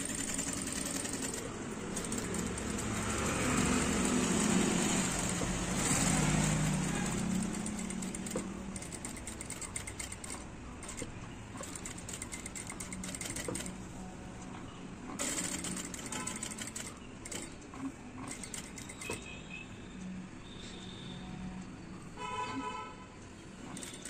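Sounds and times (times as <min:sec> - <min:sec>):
sewing machine stitching: 0:00.0 - 0:13.8, 0:15.1 - 0:19.3, 0:23.6 - 0:24.0.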